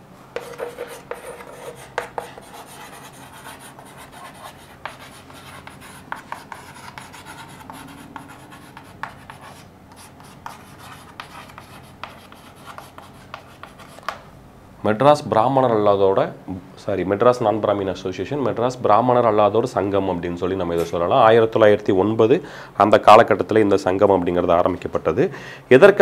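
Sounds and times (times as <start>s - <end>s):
chalk tapping on a chalkboard: 0.4s - 14.2s
chalk writing on a chalkboard: 0.4s - 14.2s.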